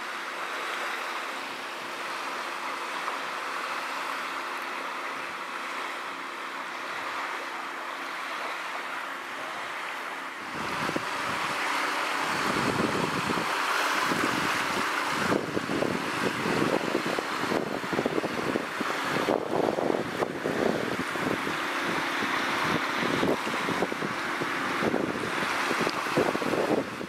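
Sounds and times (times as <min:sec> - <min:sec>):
small waves washing on shore: 0:00.0 - 0:27.0
wind buffeting microphone: 0:10.4 - 0:27.0.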